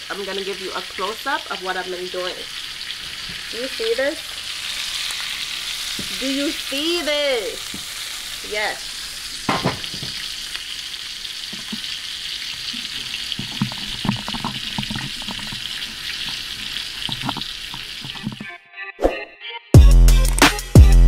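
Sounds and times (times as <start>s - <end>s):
steak sizzling in a pan: 0.0s - 18.4s
oil popping: 0.0s - 18.5s.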